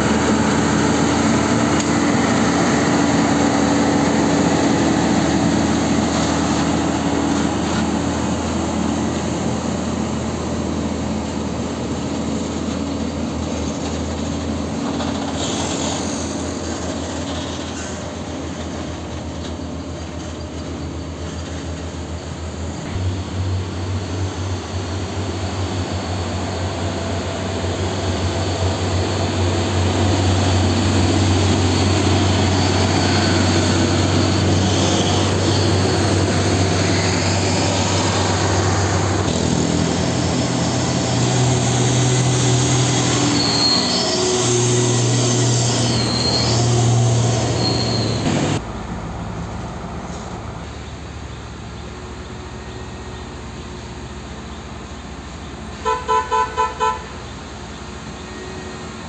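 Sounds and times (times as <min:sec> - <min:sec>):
heavy diesel trucks passing: 0:00.0 - 0:59.0
short high squeals: 0:15.1 - 0:22.8, 0:28.2 - 0:39.4, 0:41.0 - 0:48.6, 0:56.8 - 0:59.0.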